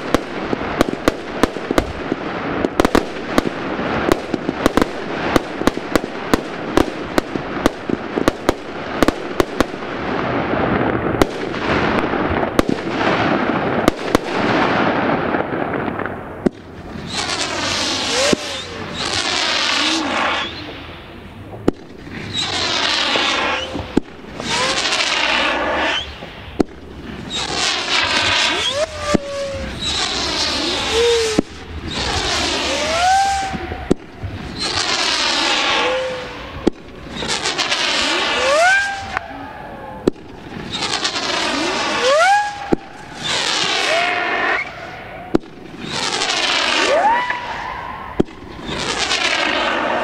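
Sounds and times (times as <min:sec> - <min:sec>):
fireworks cracking and hissing: 0:00.0 - 0:50.0
rising firework whistle: 0:16.7 - 0:50.0.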